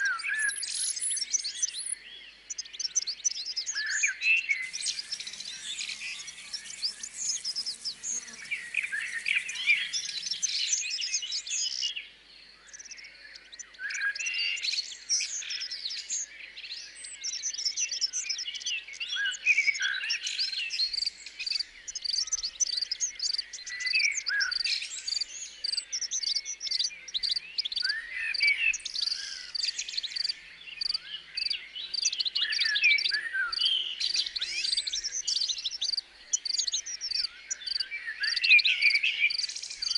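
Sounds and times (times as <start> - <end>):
birds singing and calling: 0.0 - 39.9
insects chirping: 4.6 - 10.7.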